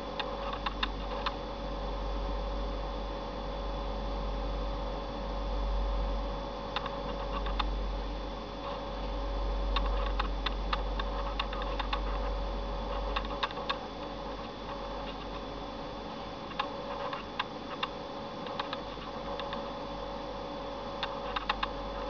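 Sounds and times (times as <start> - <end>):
steady electrical hum: 0.0 - 22.0.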